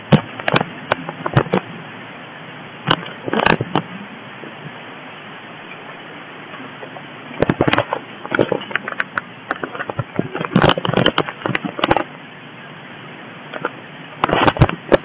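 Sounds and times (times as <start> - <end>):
phone handling crackles and clicks: 0.0 - 1.7, 2.8 - 3.9, 7.4 - 12.1, 13.5 - 15.0
steady hiss: 0.0 - 15.0.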